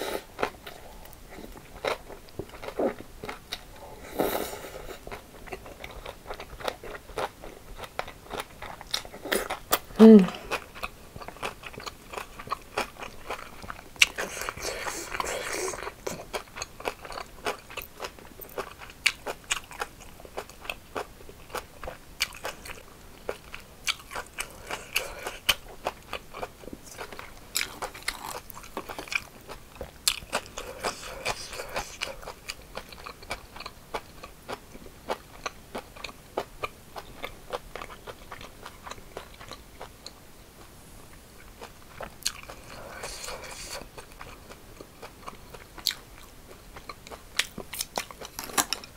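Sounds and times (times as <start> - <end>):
wet chewing: 4.6 - 40.2
cucumber crunching: 46.8 - 48.9.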